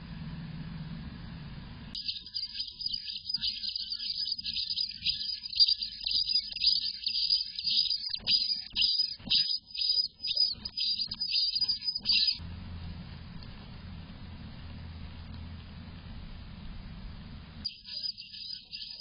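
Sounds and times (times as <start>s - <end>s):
bird nestlings begging cheeps: 2.0s - 12.4s.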